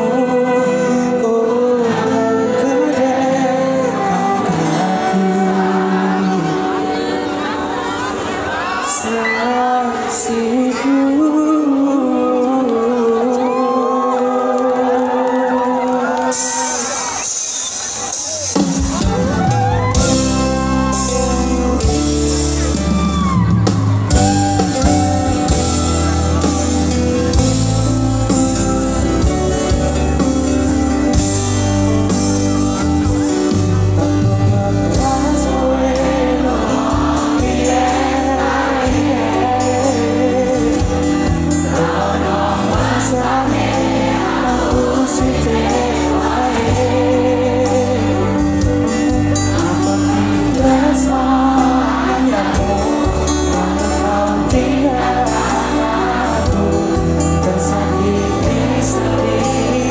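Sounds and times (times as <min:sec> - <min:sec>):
live rock band playing: 0:00.0 - 0:11.9, 0:16.1 - 0:59.9
person singing: 0:00.0 - 0:17.0, 0:32.0 - 0:59.9.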